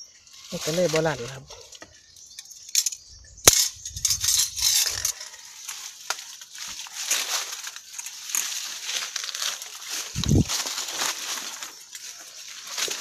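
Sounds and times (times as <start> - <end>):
crunching over grit and leaves: 4.1 - 13.0.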